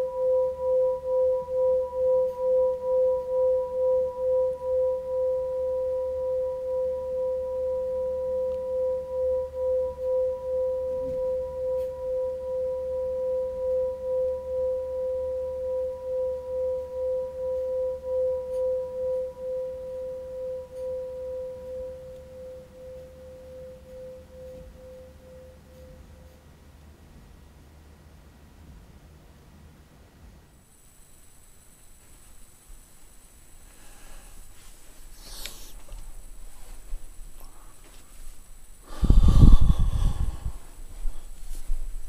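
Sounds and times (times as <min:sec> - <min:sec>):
singing bowl ringing: 0:00.0 - 0:26.4.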